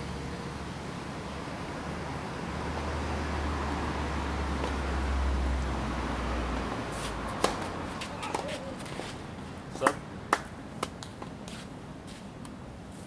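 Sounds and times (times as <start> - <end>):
tennis racket striking ball: 7.0 - 9.0.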